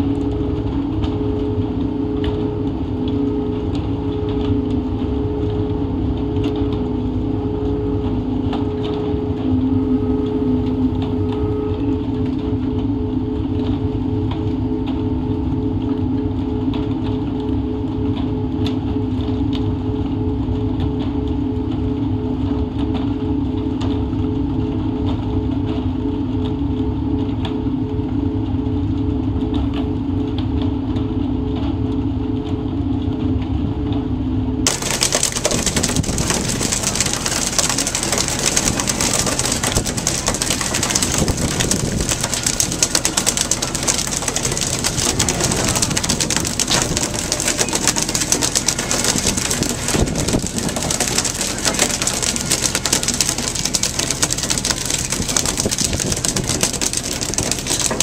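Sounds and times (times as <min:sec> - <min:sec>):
crackling patter: 0:34.6 - 0:58.0.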